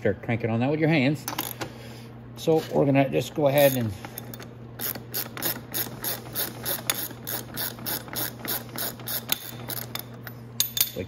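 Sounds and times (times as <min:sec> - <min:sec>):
socket ratchet clicking: 0:03.6 - 0:10.8.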